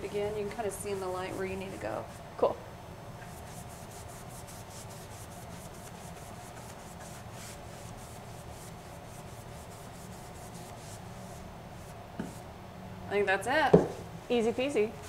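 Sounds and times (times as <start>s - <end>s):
brush scrubbing on painted wood: 0.0s - 2.2s, 3.2s - 12.4s.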